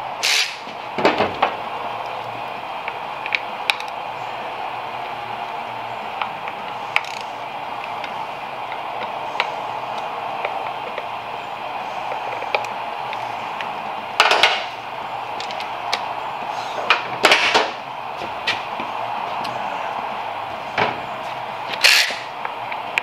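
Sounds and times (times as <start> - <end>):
bursts of tool noise: 0.1 - 0.9, 21.2 - 22.6.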